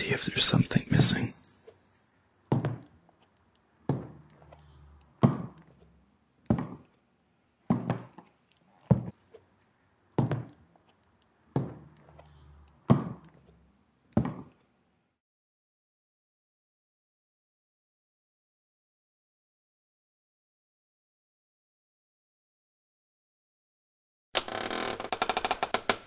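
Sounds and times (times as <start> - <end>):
heavy footsteps on stairs: 2.5 - 2.9, 5.2 - 5.6, 6.5 - 6.8, 7.7 - 8.1, 12.9 - 13.3, 14.2 - 14.5.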